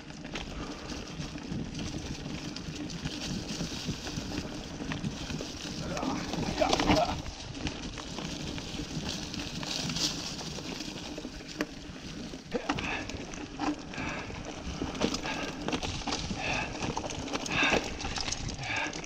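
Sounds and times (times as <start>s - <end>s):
bike knocking and rattling: 0.0s - 19.0s
bike tyres on dirt and leaves: 0.0s - 19.0s.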